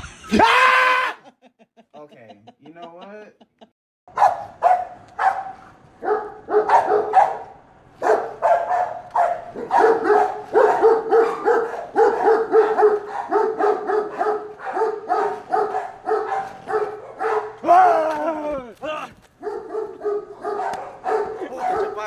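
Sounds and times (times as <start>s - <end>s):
dog barking: 4.1s - 17.6s, 19.4s - 22.0s.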